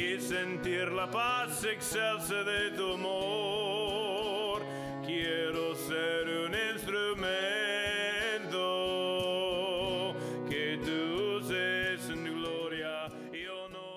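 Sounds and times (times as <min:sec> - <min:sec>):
instrumental accompaniment: 0:00.0 - 0:13.9.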